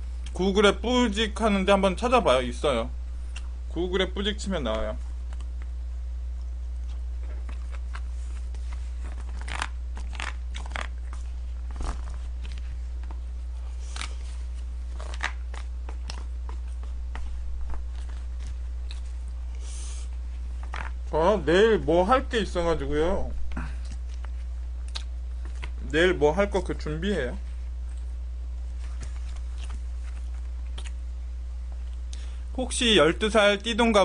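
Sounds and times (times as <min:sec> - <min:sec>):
low hum: 0:00.0 - 0:33.2
person chewing: 0:03.3 - 0:03.5, 0:06.4 - 0:11.2, 0:17.8 - 0:19.4, 0:23.5 - 0:25.8, 0:29.3 - 0:31.0.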